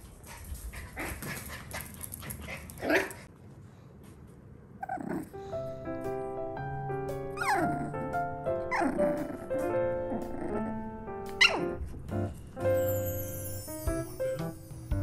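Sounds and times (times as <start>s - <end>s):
puppy whining: 4.8s - 5.4s, 7.3s - 10.7s, 11.4s - 11.8s
light piano music: 5.3s - 15.0s.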